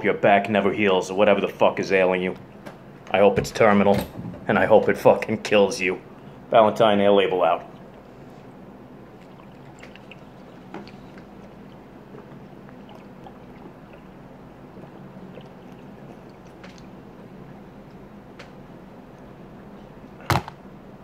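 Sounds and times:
low steady hum: 0:00.0 - 0:21.0
ale gurgling in glass bottle: 0:09.0 - 0:17.8.

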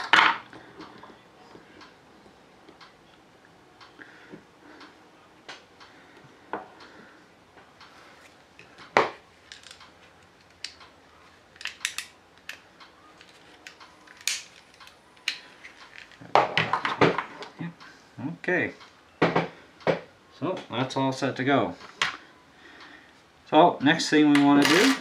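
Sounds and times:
pistol parts clicking: 0:11.6 - 0:12.6, 0:13.2 - 0:16.2.

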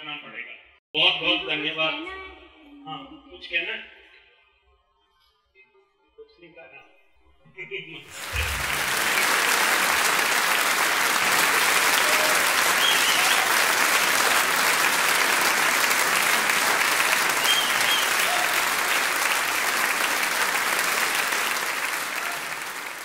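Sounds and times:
audience applauding: 0:08.1 - 0:23.0.

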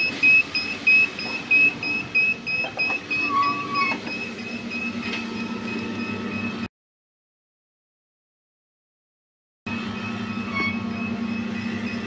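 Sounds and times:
alarm buzzer beeping rapidly: 0:00.0 - 0:06.5
low hum of factory machinery: 0:00.0 - 0:06.7, 0:09.7 - 0:12.0.

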